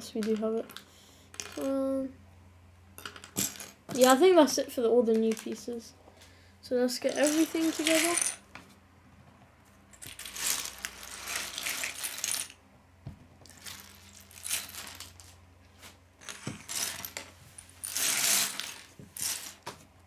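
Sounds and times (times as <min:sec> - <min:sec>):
plastic toy bricks clattering on wood: 0:00.0 - 0:01.7, 0:03.0 - 0:04.2, 0:05.1 - 0:05.7, 0:07.1 - 0:08.4, 0:10.0 - 0:12.6, 0:13.4 - 0:15.3, 0:16.2 - 0:19.7.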